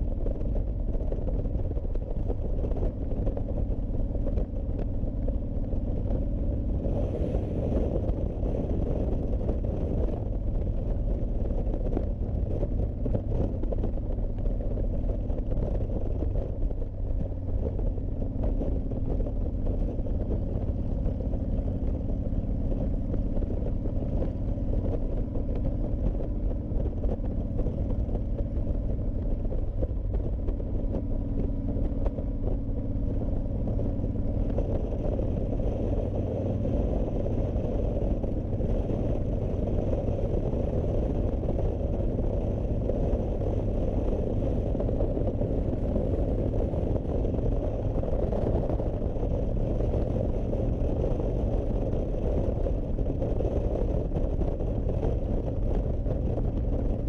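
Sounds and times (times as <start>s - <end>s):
motorcycle engine running: 0.0s - 57.0s
wind and road noise: 0.0s - 57.0s.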